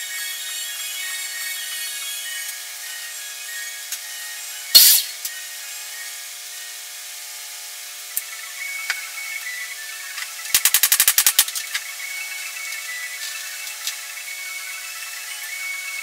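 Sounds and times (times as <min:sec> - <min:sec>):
short burst of hiss: 0:04.8 - 0:05.2.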